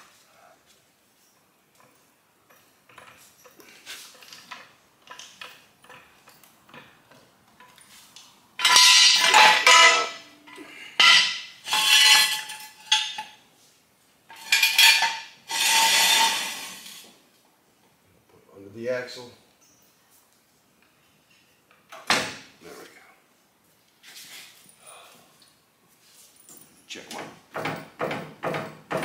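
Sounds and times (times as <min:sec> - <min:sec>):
metal clanking and scraping: 0:08.6 - 0:10.3, 0:11.0 - 0:13.4, 0:14.3 - 0:17.0.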